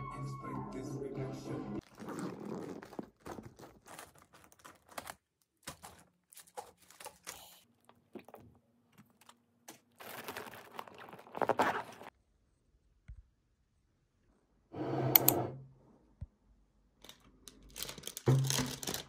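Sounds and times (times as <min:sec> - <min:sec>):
loud rasping of bag handling: 0:01.8 - 0:07.4, 0:09.7 - 0:12.1
bag and packet rustling: 0:01.8 - 0:12.1, 0:17.0 - 0:19.0.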